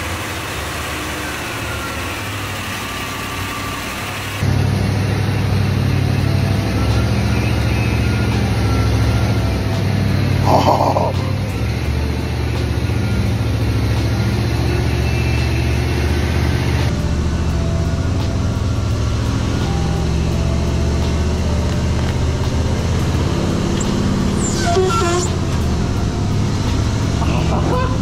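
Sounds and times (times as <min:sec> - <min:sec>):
engine idling: 0:00.0 - 0:28.0
high squeak: 0:23.8 - 0:25.6, 0:27.2 - 0:28.0.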